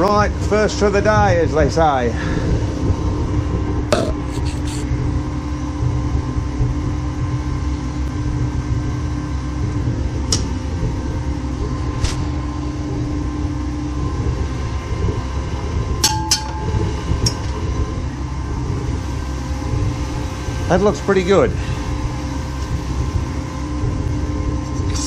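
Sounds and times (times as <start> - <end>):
faint hum: 0.0 - 25.0
steady low roar: 2.0 - 6.9.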